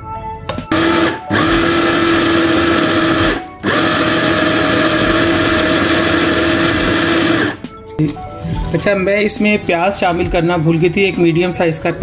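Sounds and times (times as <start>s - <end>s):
food processor grinding: 0.7s - 7.6s.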